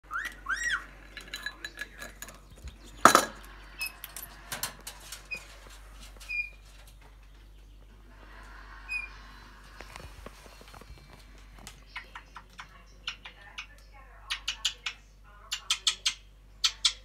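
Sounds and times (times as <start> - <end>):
parrot chirps: 0.1 - 0.9
toys clinking in glass bowl: 1.0 - 3.4.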